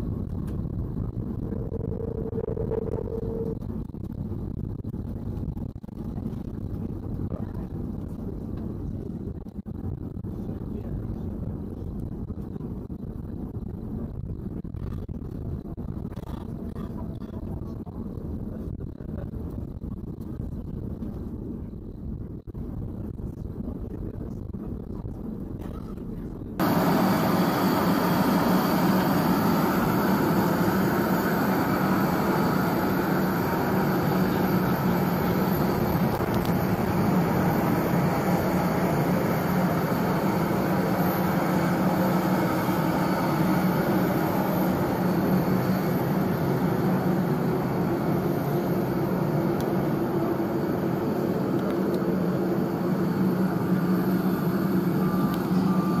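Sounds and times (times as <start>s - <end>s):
aircraft drone: 26.6s - 56.0s.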